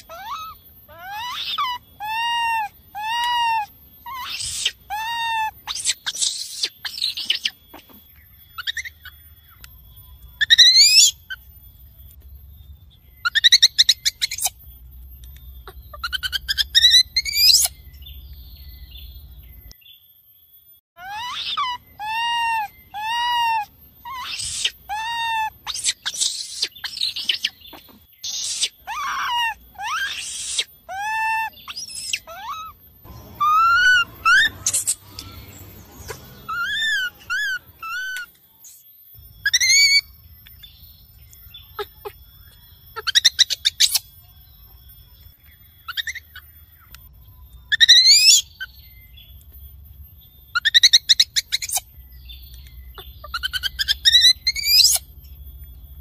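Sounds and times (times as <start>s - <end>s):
baby macaque coos and squeals: 0.0s - 9.7s, 10.4s - 11.4s, 13.2s - 14.6s, 15.6s - 17.8s, 21.0s - 38.3s, 39.4s - 40.6s, 41.7s - 42.2s, 42.9s - 44.1s, 45.9s - 46.6s, 47.7s - 48.8s, 50.6s - 51.9s, 52.9s - 55.1s.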